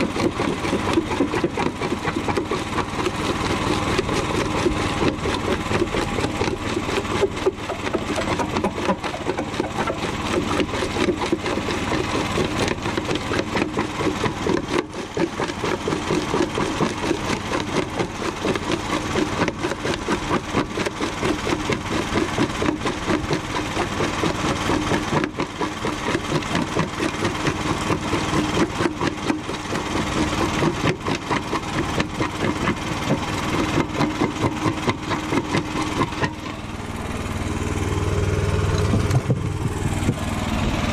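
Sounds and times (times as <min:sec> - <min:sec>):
jaw crusher crunching concrete: 0:00.0 - 0:40.9
small engine running: 0:00.0 - 0:40.9.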